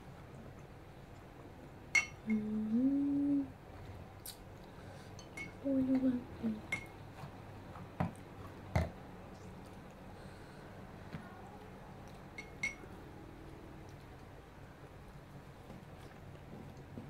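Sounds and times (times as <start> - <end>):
person humming while eating: 2.2 - 3.6, 5.6 - 6.8.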